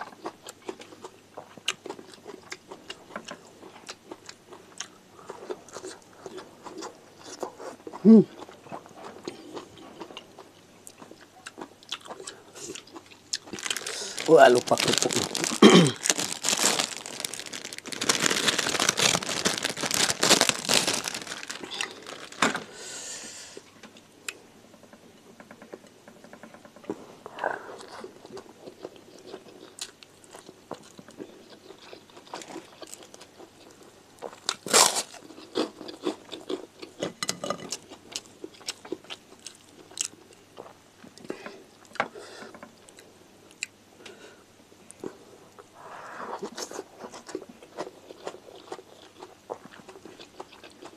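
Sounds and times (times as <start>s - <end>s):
chewing and mouth sounds: 0.0s - 22.4s, 46.4s - 50.9s
crackers crunching: 0.0s - 22.8s, 27.8s - 42.0s, 46.4s - 50.9s.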